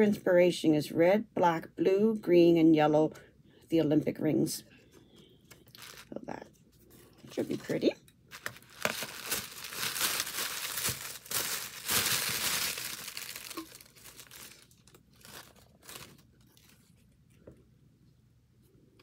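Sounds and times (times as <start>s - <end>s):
wrapping crinkling and tearing: 5.5s - 6.4s, 8.3s - 17.4s.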